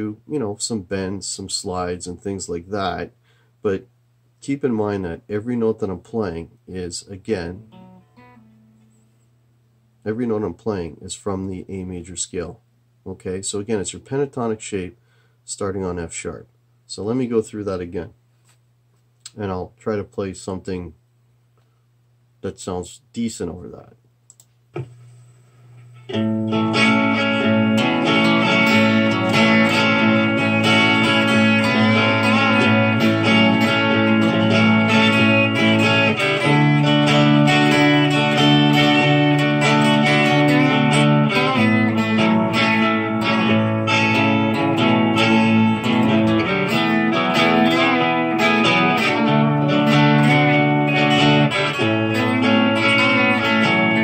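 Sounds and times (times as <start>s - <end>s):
recorded chord progression: 7.5s - 9.0s, 26.1s - 54.0s
electric guitar lead: 7.6s - 9.0s, 26.1s - 54.0s.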